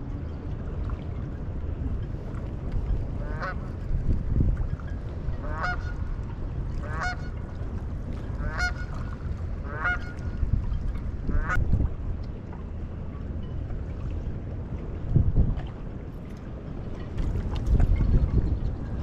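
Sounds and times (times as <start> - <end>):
low rumble of wind and water: 0.0 - 19.0
goose honking: 5.4 - 6.0, 6.9 - 7.3, 8.4 - 8.9, 9.7 - 10.2.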